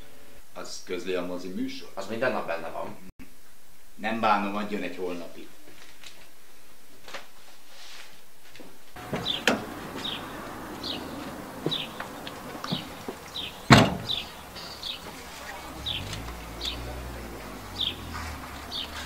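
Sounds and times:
car door opening click: 9.0 - 15.1
car door shutting thump: 9.0 - 15.2
bird chirping: 9.0 - 19.0.

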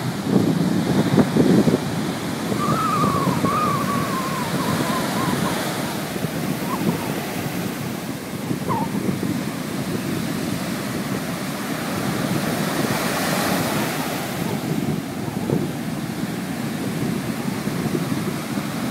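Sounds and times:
ocean surf breaking on beach: 0.0 - 18.9.

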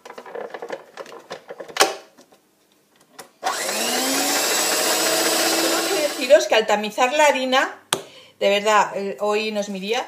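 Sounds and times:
hand mixer motor running: 3.5 - 6.4.

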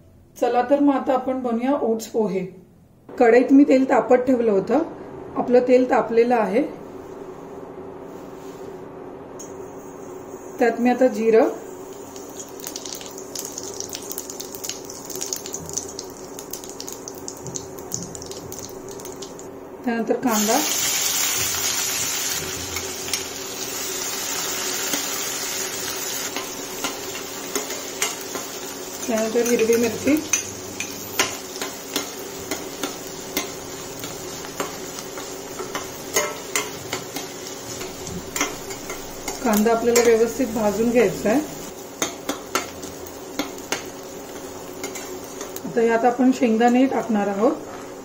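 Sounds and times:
seeds sizzling and popping in oil: 11.6 - 19.5, 20.3 - 45.9.

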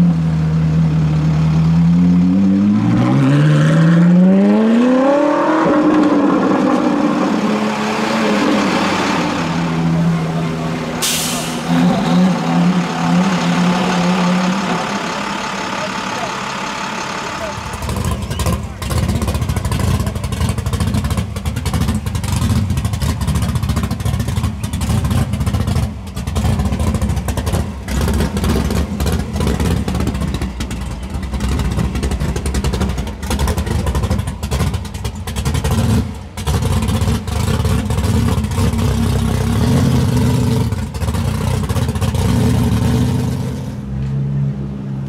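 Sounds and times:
car engine running choppy: 12.8 - 39.6, 40.3 - 42.8.

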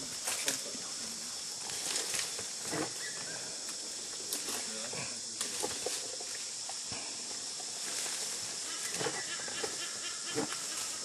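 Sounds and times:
insects chorus: 0.0 - 11.0
branches crackling and snapping: 1.6 - 4.7.

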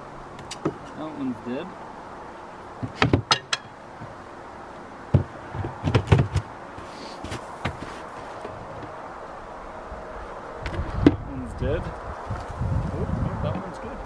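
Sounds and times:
wooden boards knocking on hive: 2.8 - 4.1, 5.1 - 6.5.

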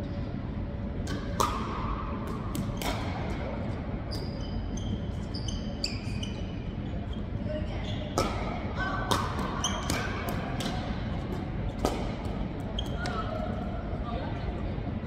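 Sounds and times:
sneakers squeaking on court: 4.1 - 8.2.

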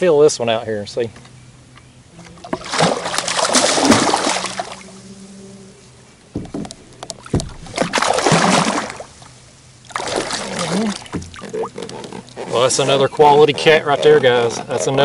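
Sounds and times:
fish thrashing and splashing: 2.2 - 5.0, 6.4 - 9.2, 9.9 - 12.5
knocks: 6.3 - 7.9.

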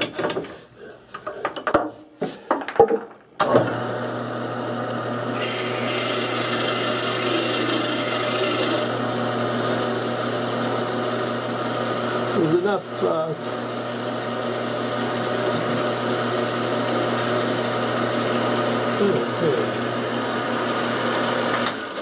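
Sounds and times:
lathe motor humming: 3.5 - 21.9
drill bit whine in wood: 4.1 - 21.7.

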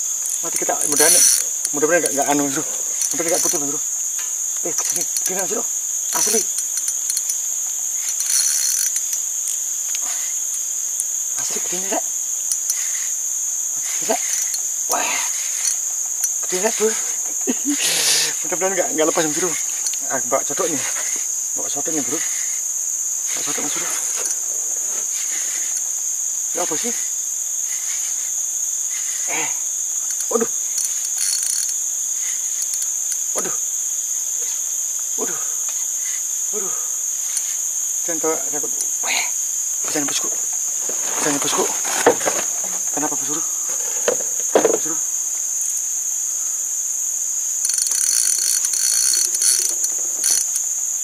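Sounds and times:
forest insects droning: 0.0 - 51.0
fishing reel drag clicking: 0.2 - 3.6, 4.8 - 11.1, 12.4 - 13.2, 13.8 - 17.0, 19.3 - 20.0, 30.1 - 33.3, 47.6 - 50.7.

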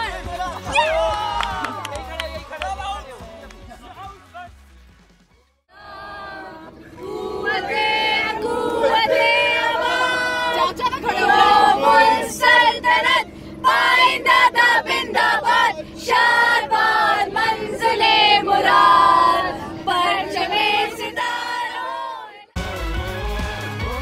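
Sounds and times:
group singing together: 5.7 - 22.6
steady low hum: 5.7 - 22.6.

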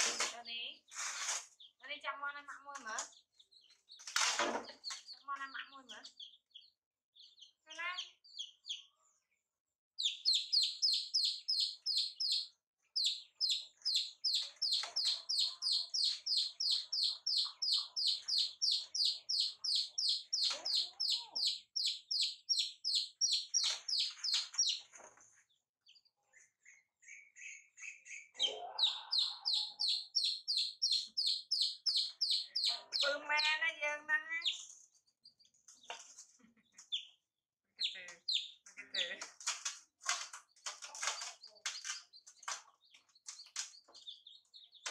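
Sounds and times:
chicks peeping: 0.0 - 9.4, 10.0 - 44.9
wavering cry: 28.4 - 33.5.

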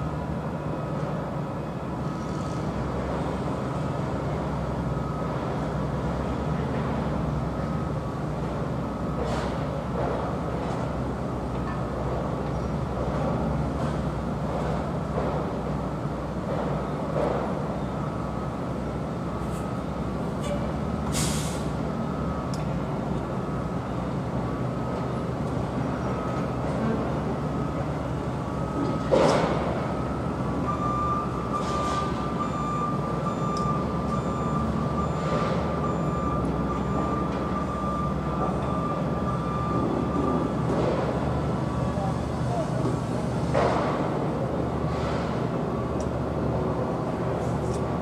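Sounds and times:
short hiss: 21.1 - 21.7.

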